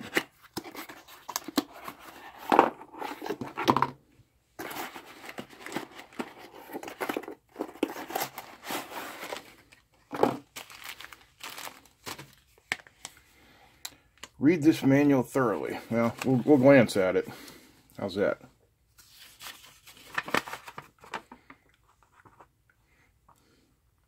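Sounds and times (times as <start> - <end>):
cardboard box rustling: 4.6 - 9.6
plastic bag crinkling: 10.3 - 12.3.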